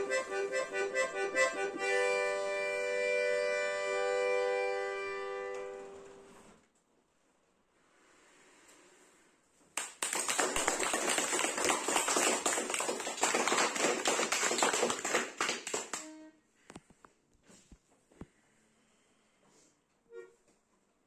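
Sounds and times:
people clapping: 9.8 - 16.1.

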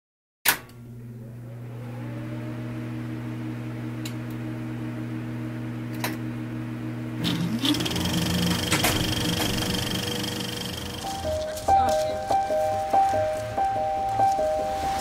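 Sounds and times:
low synthesized drone: 7.2 - 15.0
intro music: 8.0 - 15.0.

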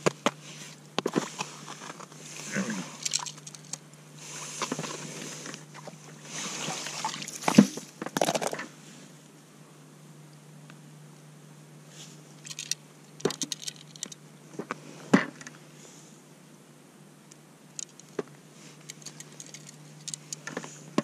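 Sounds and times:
skimmer scraping and sloshing ice: 4.2 - 7.8.

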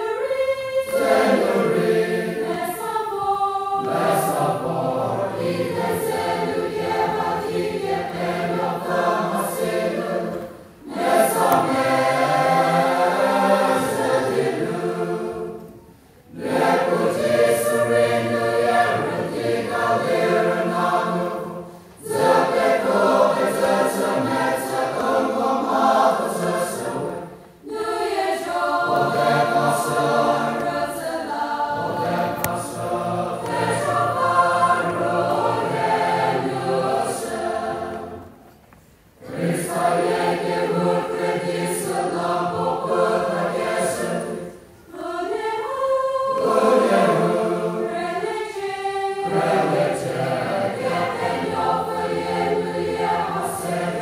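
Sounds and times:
choir singing: 0.0 - 54.0.

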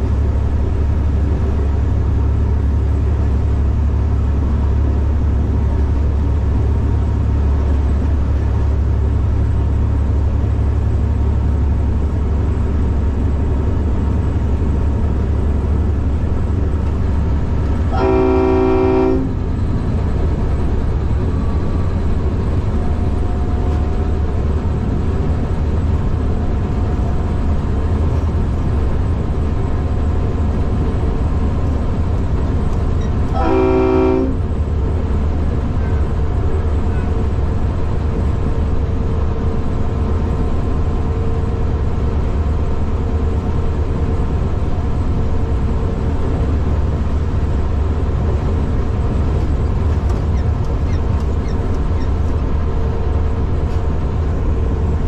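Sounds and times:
locomotive engine drone: 0.0 - 55.0
locomotive horn chord blasts: 17.9 - 19.5, 33.3 - 34.4.

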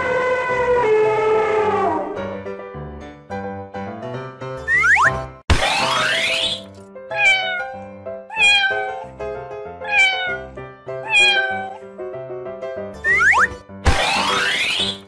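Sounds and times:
children's background music: 4.6 - 9.4, 12.8 - 15.0
cat meowing: 7.1 - 9.1, 9.8 - 11.8.

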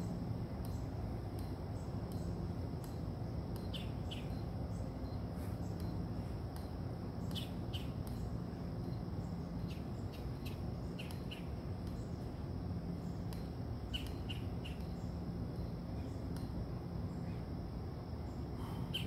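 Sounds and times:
high insect drone: 0.0 - 19.0
bird chirps: 3.6 - 6.0, 7.2 - 12.3, 13.9 - 16.3.

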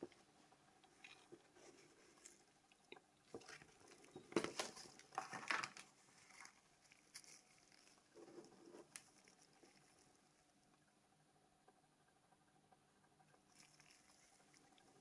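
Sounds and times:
paper rustling: 3.4 - 9.4.

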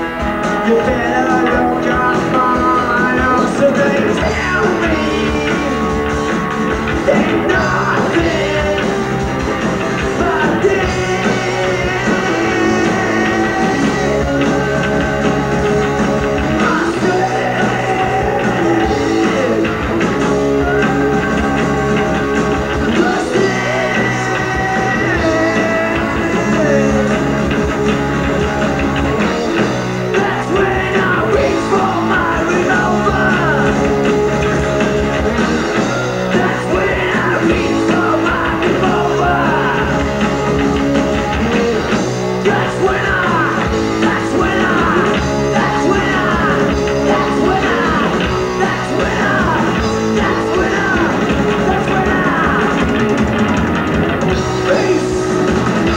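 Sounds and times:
man singing lead: 0.0 - 53.2, 54.3 - 55.9
live rock band playing: 0.0 - 55.9.

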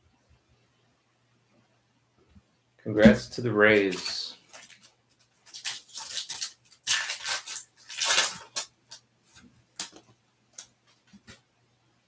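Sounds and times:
foil wrapper crinkling and tearing: 3.9 - 9.0.

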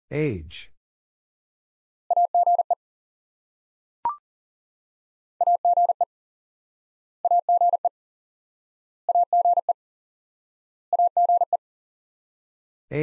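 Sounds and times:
morse code beeps: 2.1 - 2.8, 5.4 - 6.0.

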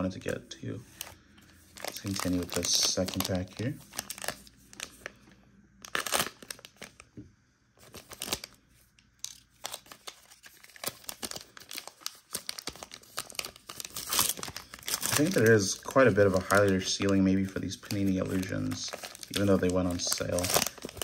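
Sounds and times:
plastic wrapper crinkling and tearing: 0.9 - 7.2, 7.8 - 21.0.

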